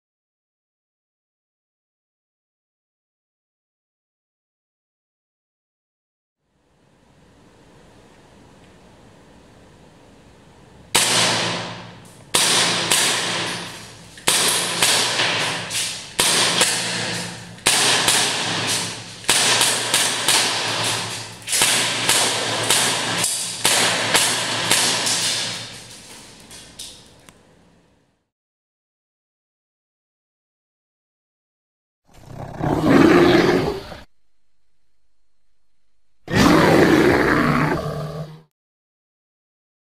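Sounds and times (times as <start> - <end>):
airsoft pistol shots: 10.9 - 25.9.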